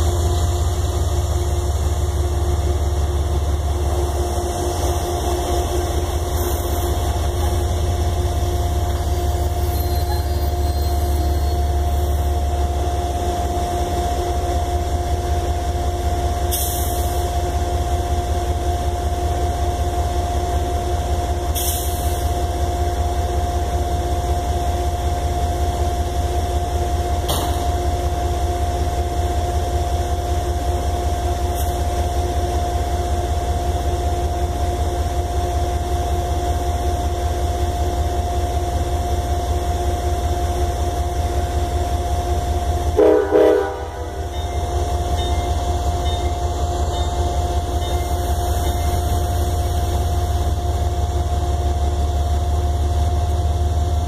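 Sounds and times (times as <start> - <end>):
train rumbling: 0.0 - 54.0.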